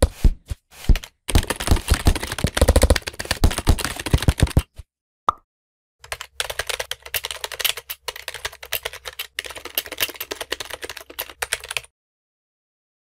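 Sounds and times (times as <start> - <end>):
typing on keyboard: 1.0 - 4.8, 6.0 - 11.9.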